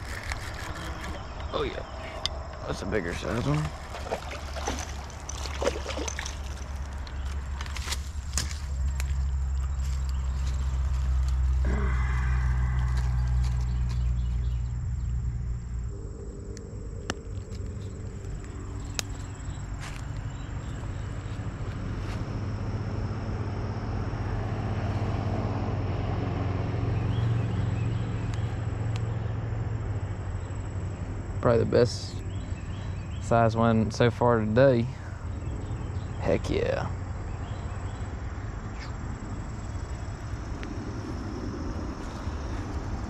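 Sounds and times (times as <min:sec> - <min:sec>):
low engine hum: 0:00.0 - 0:43.0.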